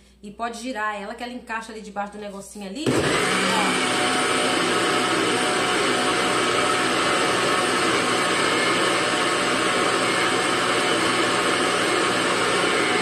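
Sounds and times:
blender motor running: 2.8s - 13.0s.

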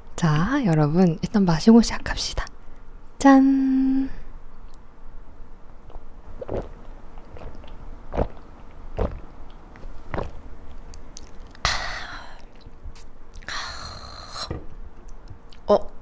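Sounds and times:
person gulping beer: 5.9s - 9.3s.

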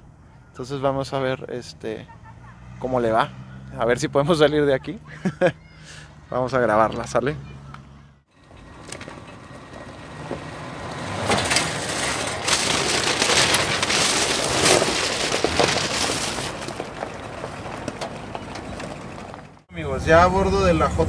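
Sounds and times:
tyres crunching over stones: 8.6s - 19.7s.

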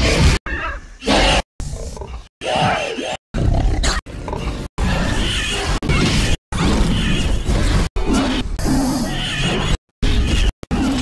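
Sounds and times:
dinosaur roars and growls: 6.6s - 11.0s.

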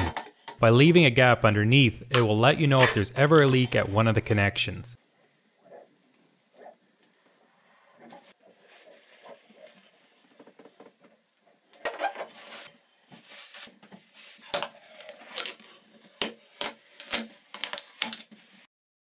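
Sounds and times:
tape peeling off: 12.0s - 18.6s.

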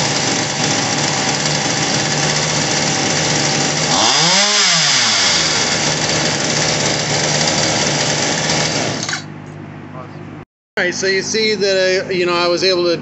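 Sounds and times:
chainsaw engine idling: 0.0s - 9.3s
chainsaw engine rev: 0.0s - 9.3s.

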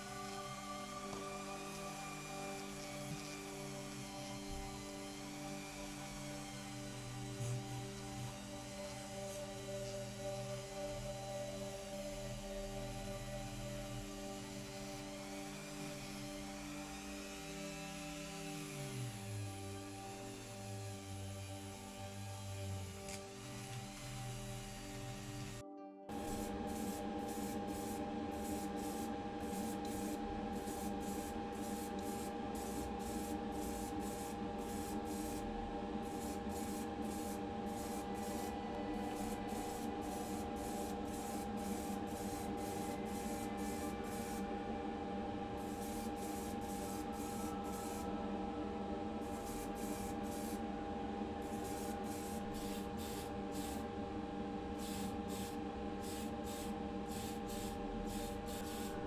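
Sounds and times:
extractor fan hum: 17.6s - 59.0s
spray can hissing: 26.1s - 35.4s, 36.0s - 44.4s, 45.6s - 48.0s, 51.5s - 53.8s, 54.8s - 59.0s.

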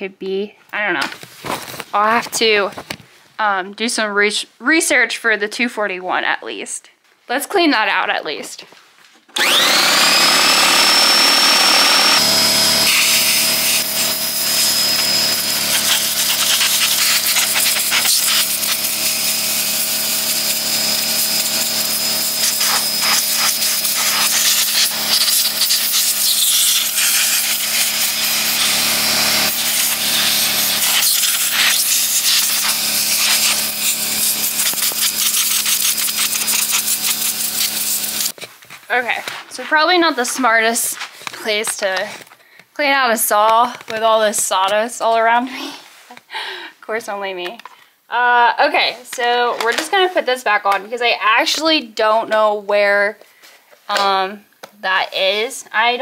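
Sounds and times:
air compressor running: 9.4s - 38.4s
compressed air hissing: 12.8s - 38.4s.

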